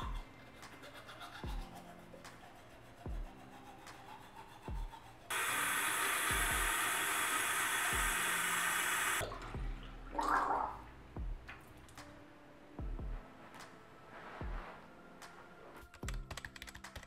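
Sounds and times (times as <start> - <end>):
background music with steady beat: 0.0 - 17.0.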